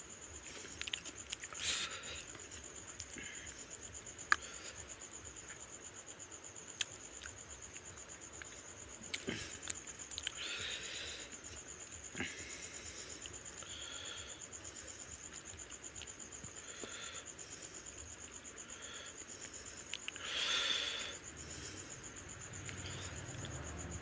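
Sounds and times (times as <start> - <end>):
chewing: 0.5 - 1.6, 6.7 - 10.4.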